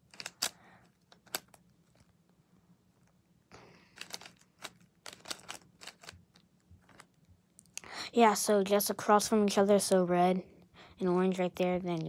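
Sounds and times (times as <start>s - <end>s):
puzzle cube clicking: 0.0s - 1.6s, 3.9s - 7.1s.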